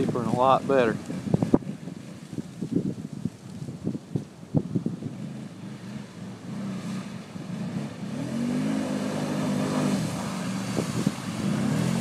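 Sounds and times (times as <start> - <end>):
quad bike engine revving: 5.1 - 12.0.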